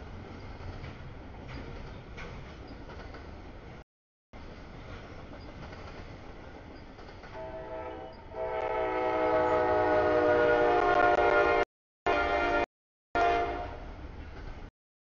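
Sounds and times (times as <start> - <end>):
freight train rumbling: 0.0 - 3.8, 4.4 - 12.6, 13.2 - 14.7
diesel locomotive horn: 7.3 - 14.0.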